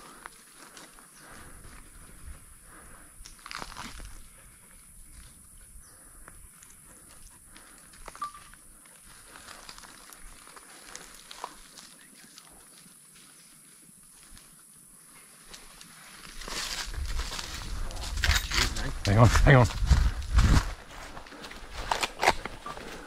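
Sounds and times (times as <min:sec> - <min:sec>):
footsteps crunching dry leaves: 0:15.4 - 0:23.0.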